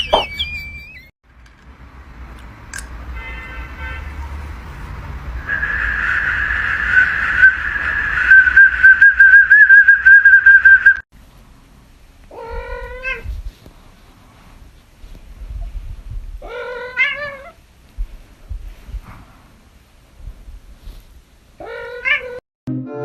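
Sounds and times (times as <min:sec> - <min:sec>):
shrill toy whistle trilling: 0:00.0 - 0:01.1, 0:05.4 - 0:11.0
cat meowing: 0:12.3 - 0:13.3, 0:16.4 - 0:17.6, 0:21.6 - 0:22.4.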